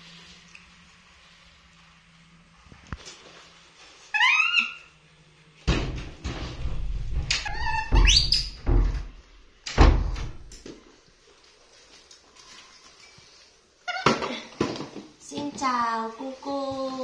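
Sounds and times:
monkey squealing: 4.1 - 4.9.

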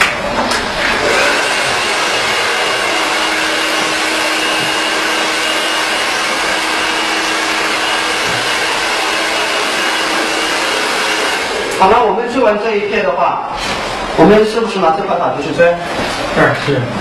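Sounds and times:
hair dryer blowing: 0.0 - 12.3.

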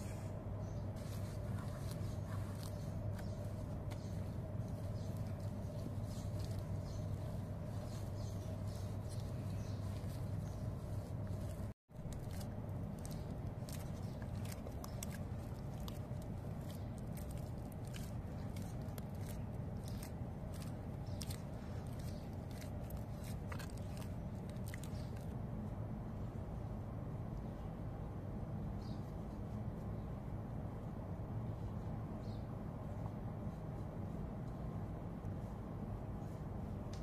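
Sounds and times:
hands kneading sticky dough: 0.0 - 25.4
steady low hum: 0.0 - 37.0
dough squelching and wet clicks: 1.3 - 25.4.

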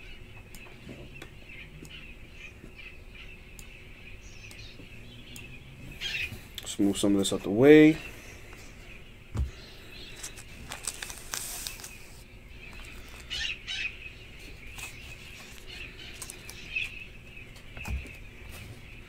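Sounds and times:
card rustles: 10.1 - 13.5, 14.6 - 17.0.

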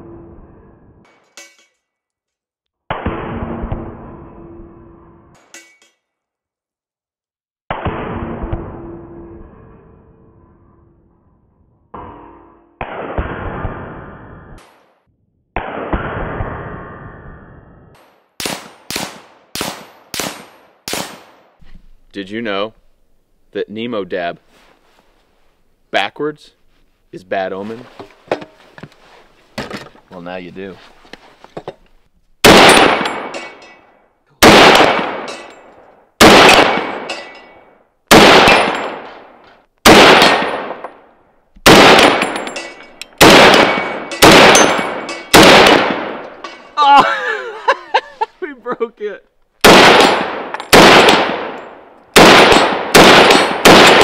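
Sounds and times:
rifle shots hitting steel targets: 18.0 - 21.5, 32.4 - 46.8, 49.6 - 54.0.

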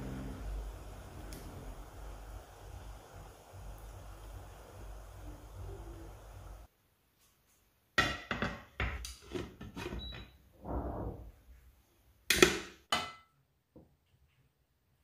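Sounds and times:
plate scraping on pan: 9.3 - 11.3.

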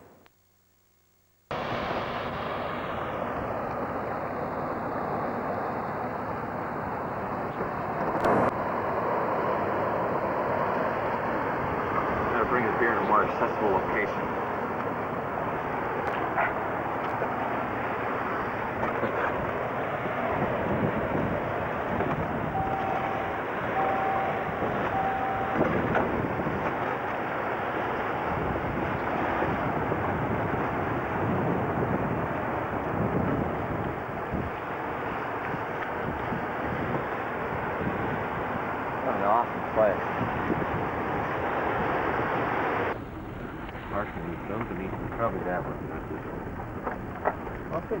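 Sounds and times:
vehicle rumble: 1.5 - 48.0
wind rushing on microphone: 1.5 - 48.0
mid-pitched beeps: 22.6 - 25.7.

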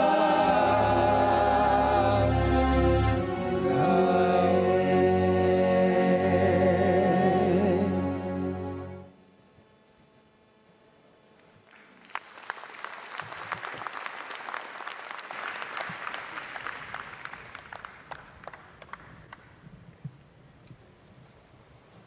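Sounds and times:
large audience applauding: 11.7 - 19.5.

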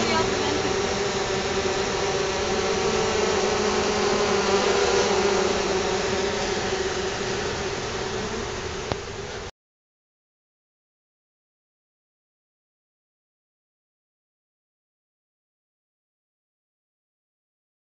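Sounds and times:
honey bees buzzing: 0.0 - 9.5.

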